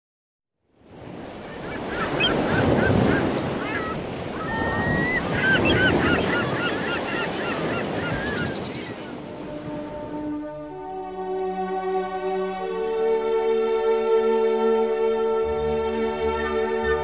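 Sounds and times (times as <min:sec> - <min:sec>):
surf washing on shore: 0:00.8 - 0:10.4
birds chirping and squealing: 0:01.5 - 0:09.2.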